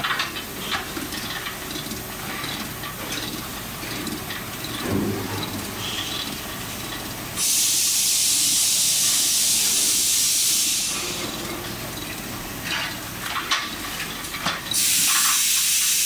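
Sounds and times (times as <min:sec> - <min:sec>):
gearbox whirring: 0:00.0 - 0:07.4.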